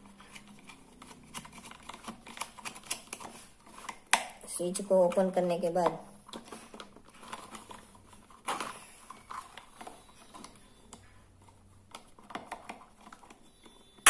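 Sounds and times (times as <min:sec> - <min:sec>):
fingers handling plastic torch: 0:00.0 - 0:04.3.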